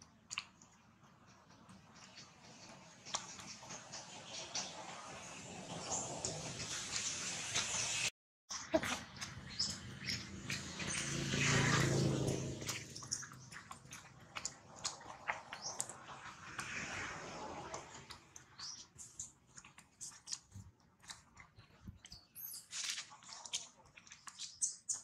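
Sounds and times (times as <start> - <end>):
monkey chewing food: 8.6 - 16.7, 17.7 - 25.0.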